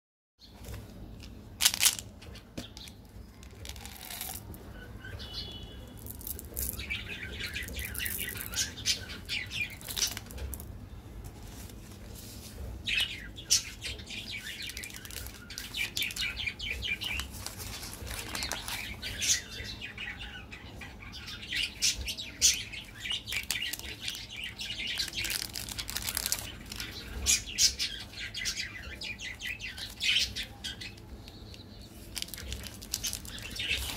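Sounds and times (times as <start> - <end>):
candy wrappers crinkling: 1.2 - 2.2, 2.8 - 4.6, 6.0 - 10.7, 13.9 - 19.4, 22.7 - 27.5, 30.9 - 33.9
wrapper tearing snaps: 1.6 - 2.1, 3.5 - 4.6, 25.0 - 27.0, 32.1 - 33.9.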